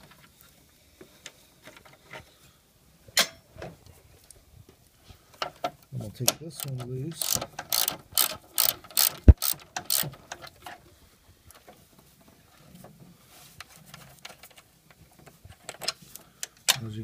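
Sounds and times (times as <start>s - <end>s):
ratchet wrench clicking: 6.6s - 10.1s
faint handling sounds: 9.9s - 17.0s.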